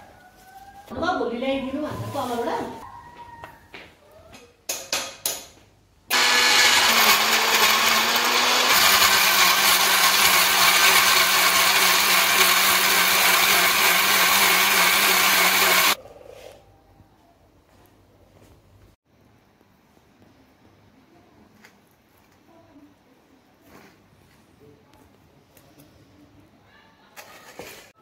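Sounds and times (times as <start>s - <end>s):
mixer grinder motor humming: 6.1s - 16.0s.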